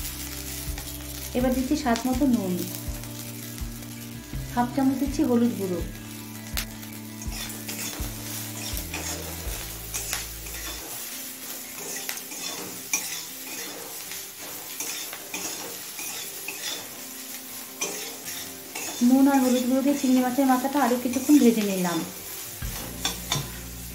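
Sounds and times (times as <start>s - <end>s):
shrimp sizzling in pan: 0.0s - 23.9s
metal spatula scraping pan: 7.2s - 17.1s, 17.7s - 20.0s, 20.8s - 23.6s.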